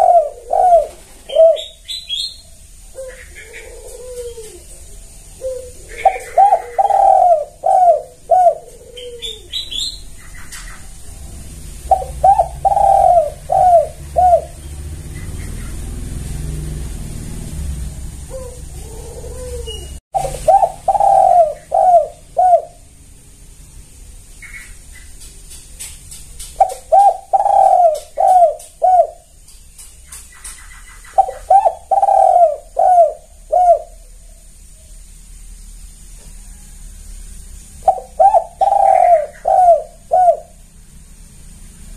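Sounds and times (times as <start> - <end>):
dove cooing: 0.0 - 16.1, 18.1 - 22.9, 26.6 - 29.3, 31.1 - 34.5, 37.8 - 40.7.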